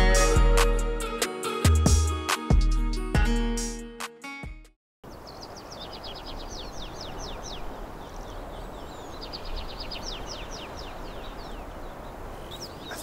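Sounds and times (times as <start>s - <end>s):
outdoor background hiss: 5.0s - 13.0s.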